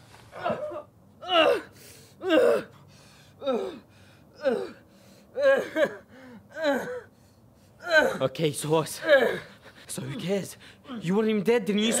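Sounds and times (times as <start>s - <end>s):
man crying out in pain: 0.4s - 2.7s, 5.4s - 7.1s, 7.8s - 8.4s, 9.0s - 9.5s.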